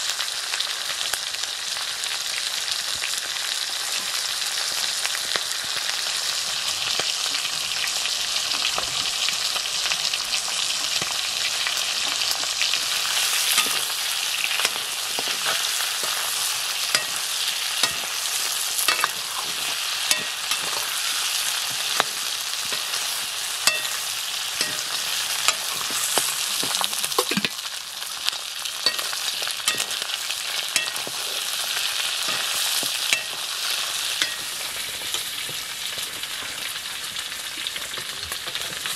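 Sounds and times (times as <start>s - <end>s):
meat sizzling in a wok: 0.0s - 38.9s
metal ladle clinking on pan: 13.5s - 16.3s, 16.9s - 21.0s, 21.9s - 25.9s, 28.9s - 33.6s, 34.2s - 35.3s.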